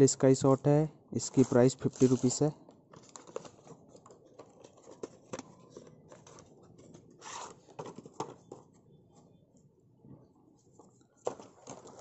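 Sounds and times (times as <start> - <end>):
cardboard box scrapes and clicks: 7.1 - 7.6.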